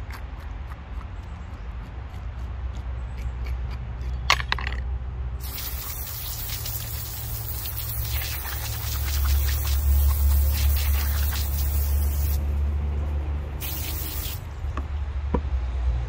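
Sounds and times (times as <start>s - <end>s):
hose nozzle spraying water: 5.4s - 12.4s, 13.6s - 14.4s.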